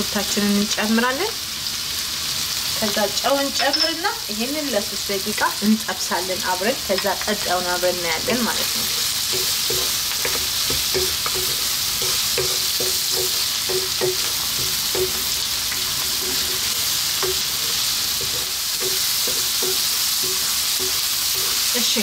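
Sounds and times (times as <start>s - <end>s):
meat sizzling in hot oil: 0.0s - 22.0s
wooden spoon scraping a pan: 8.2s - 22.0s.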